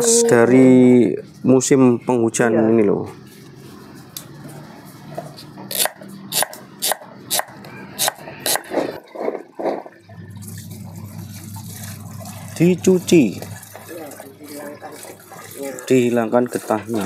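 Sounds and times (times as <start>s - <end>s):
water running from hose: 10.2s - 17.0s.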